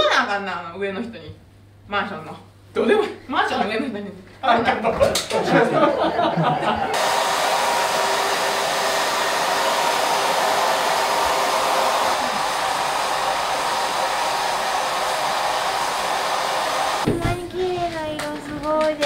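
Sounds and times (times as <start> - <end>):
hair dryers blowing: 6.8 - 17.4.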